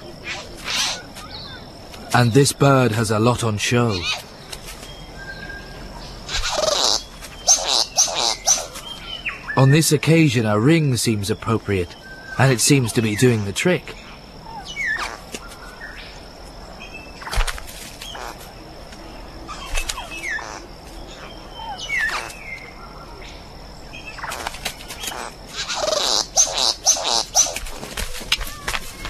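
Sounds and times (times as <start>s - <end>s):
bird buzzing rattling churr: 6.2s - 8.8s, 17.2s - 18.5s, 19.5s - 22.6s, 24.1s - 27.9s
bird clicks and falling chirps: 17.2s - 21.2s, 24.2s - 29.0s.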